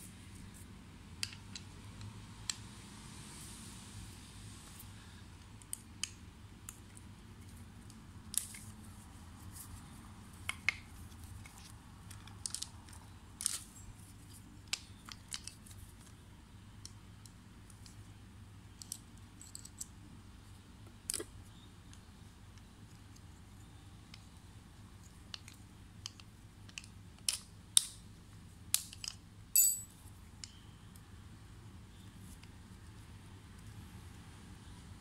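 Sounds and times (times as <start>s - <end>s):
small clicks and scrapes of tools: 10.4s - 16.2s.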